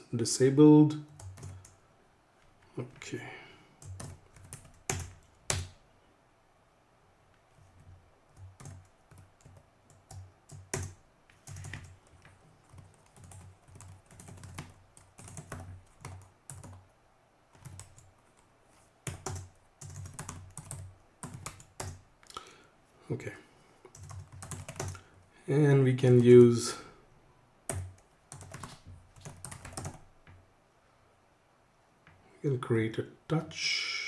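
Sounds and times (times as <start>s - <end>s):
keyboard typing: 1.1s - 1.8s, 3.8s - 5.8s, 7.8s - 16.8s, 17.5s - 18.4s, 19.0s - 22.0s, 23.9s - 25.0s, 27.7s - 30.4s.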